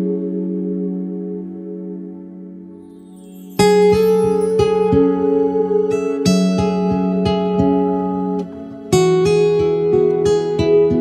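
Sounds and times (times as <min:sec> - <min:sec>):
plucked acoustic guitar melody: 0:03.2 - 0:11.0.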